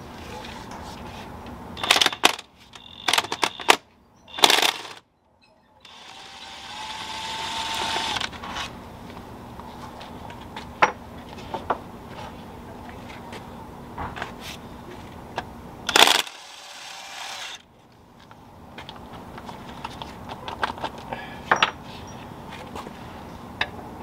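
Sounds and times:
small power tool whirring: 4.3s - 5.0s, 5.8s - 8.4s, 15.9s - 17.6s.

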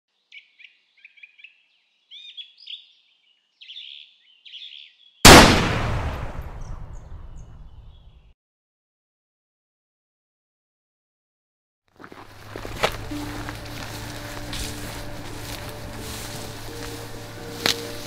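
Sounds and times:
small birds chirping: 0.1s - 5.2s, 6.6s - 8.4s
loud rifle shot echoing: 5.2s - 7.8s.

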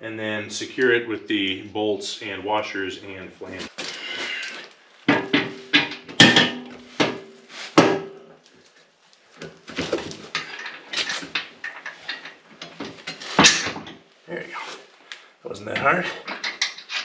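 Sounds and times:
metal frame clanking: 5.1s - 8.2s, 9.8s - 14.0s, 15.7s - 17.0s
sharp metal knocks ringing: 5.1s - 8.2s.

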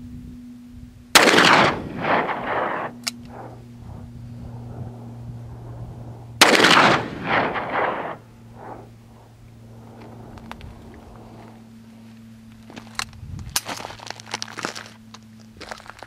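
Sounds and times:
revolver gunshots with echoes: 1.1s - 10.4s.

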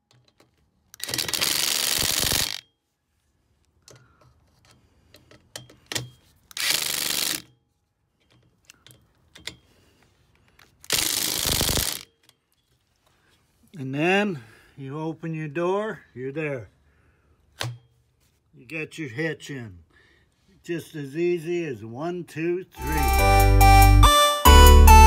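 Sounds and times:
small clicks: 0.1s - 2.6s, 10.4s - 12.7s
cordless drill driving screws: 1.0s - 2.6s, 6.5s - 7.5s, 10.9s - 12.0s.

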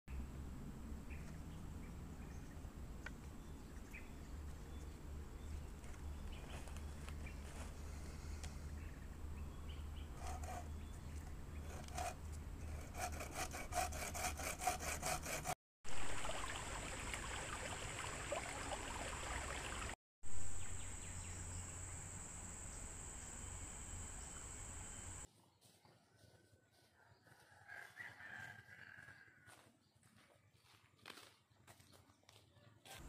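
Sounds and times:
bowsaw cutting through log: 10.1s - 15.6s
high hum of insects: 16.6s - 25.3s.

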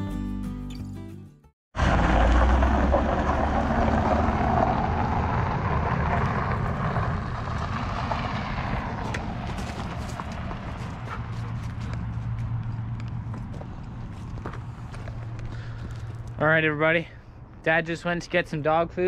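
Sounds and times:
truck driving over gravel: 1.8s - 16.5s
footsteps on gravel: 8.8s - 16.4s.

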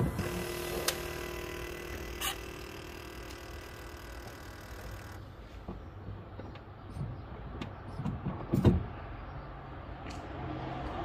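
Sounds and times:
car engine idling: 0.0s - 5.6s.

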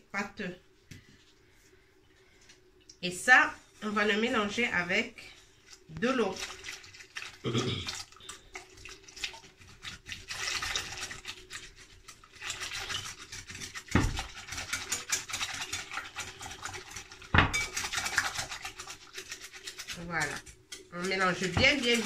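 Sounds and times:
whisk clicking against glass bowl: 17.5s - 22.0s.

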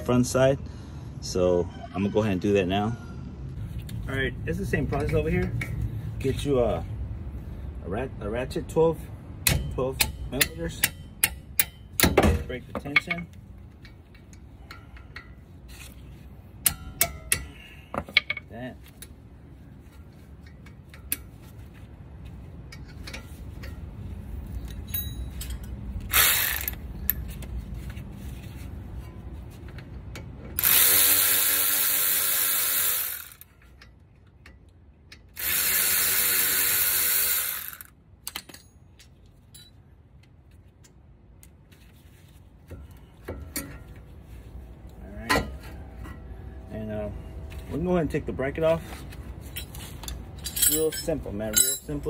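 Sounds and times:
metallic clicks and knocks: 9.4s - 15.4s, 38.2s - 41.0s
ratchet spinning bolts: 24.7s - 27.2s, 30.6s - 33.8s, 35.2s - 37.9s.

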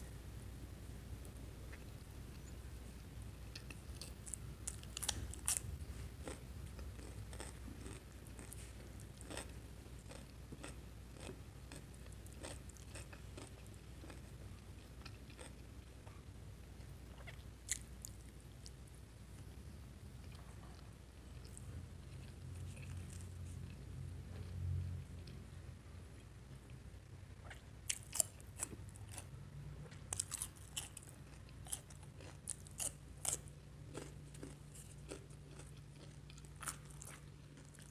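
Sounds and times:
soft chewing: 1.2s - 37.9s
crunchy bites and chewing: 3.6s - 14.3s, 27.9s - 29.3s, 30.1s - 37.9s.

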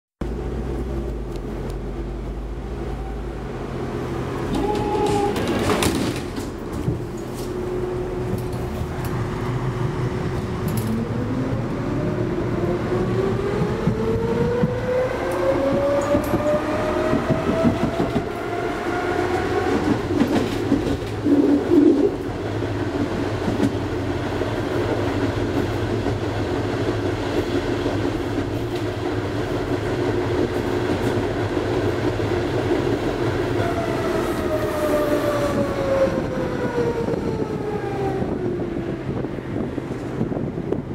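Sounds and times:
tram traction drive whining: 0.3s - 40.9s
wheel clatter on rails: 4.4s - 7.5s.

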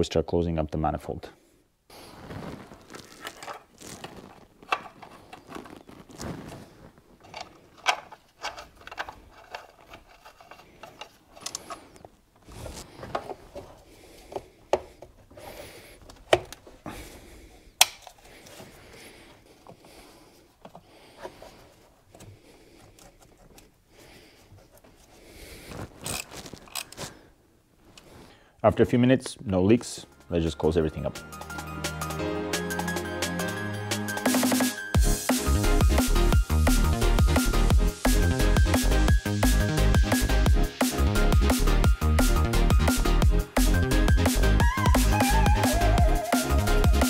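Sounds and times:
hoses clicking onto plastic pump: 16.0s - 16.6s, 17.8s - 18.6s
sharp plastic snaps: 17.8s - 18.2s.

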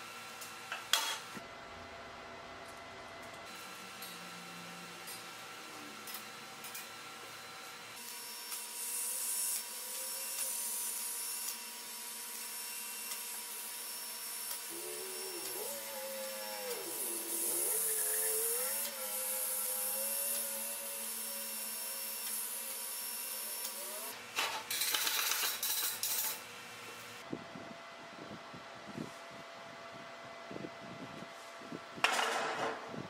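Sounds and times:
welding arc hissing: 8.0s - 26.4s.

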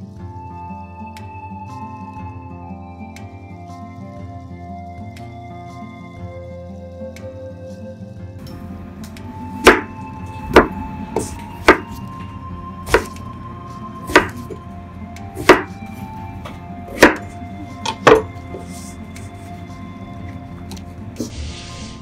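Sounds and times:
soft background music: 0.0s - 22.0s
knife chopping on cutting board: 9.6s - 9.9s, 10.5s - 12.0s, 12.9s - 13.2s, 14.1s - 14.6s, 15.4s - 15.8s, 16.9s - 18.8s.

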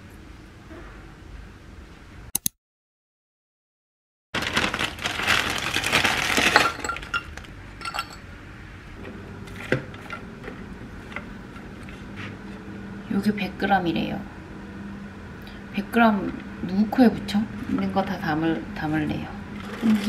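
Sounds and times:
shredded cabbage rustling: 4.4s - 7.4s
plastic bag crinkling: 4.4s - 7.5s.

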